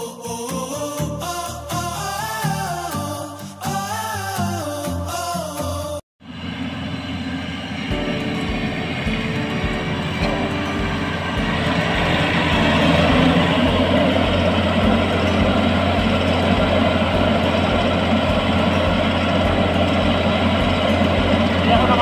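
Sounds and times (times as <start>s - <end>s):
combine harvester engine drone: 6.2s - 22.0s.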